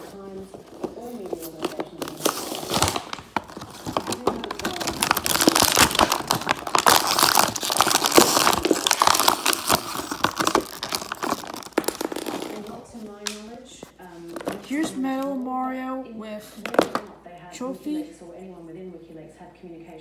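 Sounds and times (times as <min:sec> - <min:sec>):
plastic packaging crinkling: 0:00.0 - 0:15.4.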